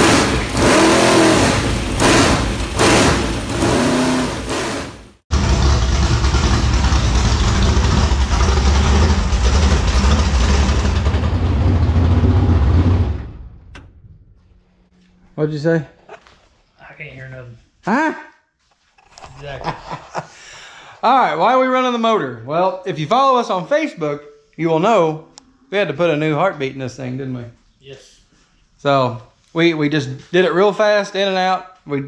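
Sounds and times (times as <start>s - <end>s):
race car engine running loud: 0.0s - 13.2s.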